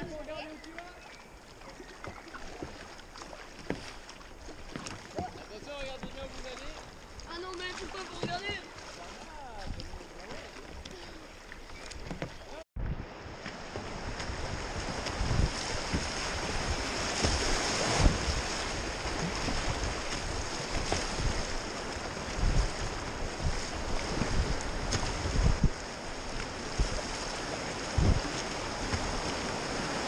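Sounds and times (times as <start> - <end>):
water thumping against boat: 0.0 - 11.0, 11.8 - 30.0
whitewater rushing: 13.6 - 30.0.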